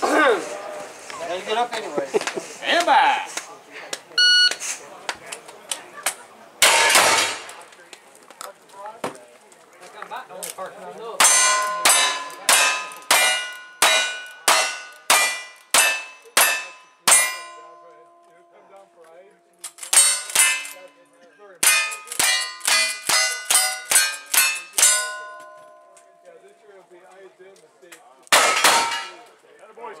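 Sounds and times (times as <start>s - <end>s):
rifle shots: 6.6s - 7.6s
bullet clanging on steel plate: 11.2s - 18.4s, 19.7s - 20.9s, 21.6s - 26.1s, 28.3s - 29.2s.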